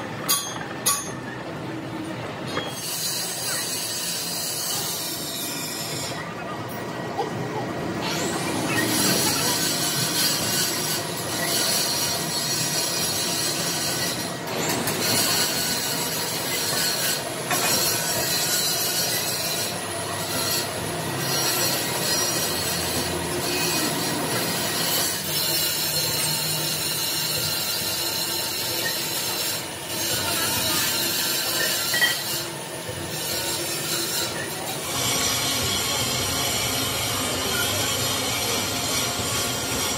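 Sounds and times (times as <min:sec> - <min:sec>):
machinery high metallic squeal: 0:02.4 - 0:07.0, 0:07.9 - 0:39.9.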